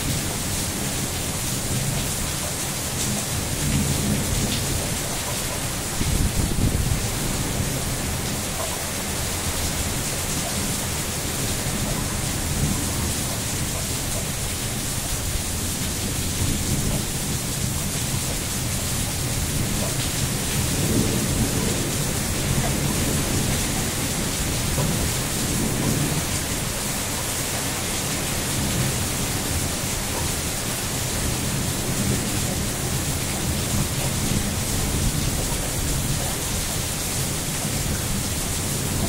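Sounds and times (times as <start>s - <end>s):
heavy rain falling: 0.0s - 39.0s.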